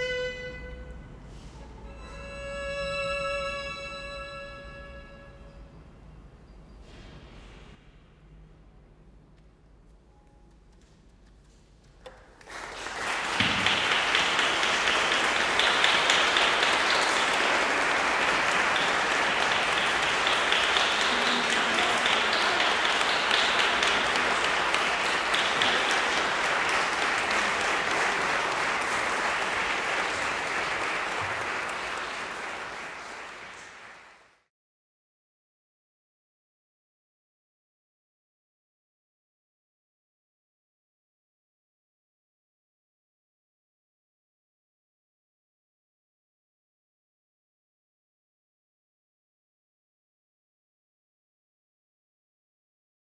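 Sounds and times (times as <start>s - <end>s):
audience applauding: 12.0s - 34.4s.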